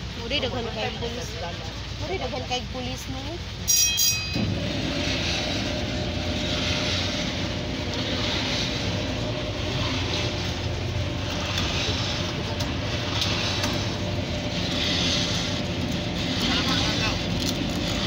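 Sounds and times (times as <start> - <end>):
ferry engine droning: 0.0 - 18.0
rushing wind and water: 0.0 - 18.0.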